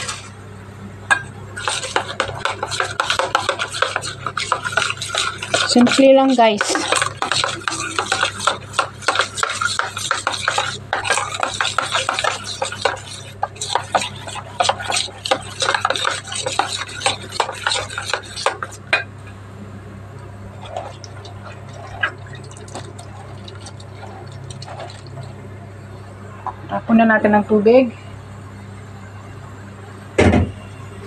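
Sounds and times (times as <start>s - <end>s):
metal spoon stirring in bowl: 1.1s - 19.1s, 20.5s - 25.4s.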